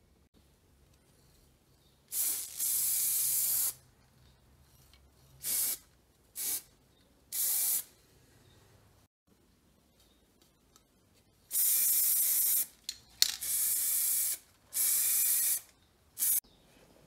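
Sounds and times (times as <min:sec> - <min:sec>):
aerosol spray can hissing: 0:02.1 - 0:03.8, 0:05.4 - 0:05.8, 0:07.4 - 0:07.9, 0:11.5 - 0:12.7, 0:13.4 - 0:16.4.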